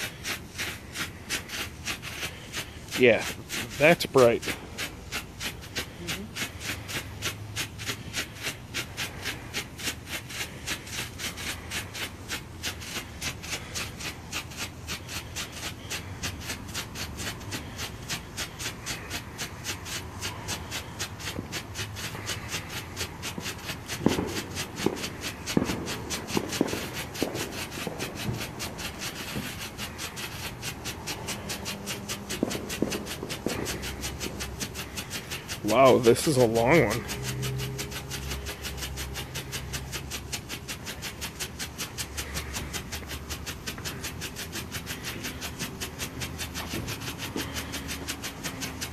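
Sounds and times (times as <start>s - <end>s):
strobe firework popping: 0.0s - 47.8s
firework thumps: 22.6s - 29.6s, 31.1s - 35.7s.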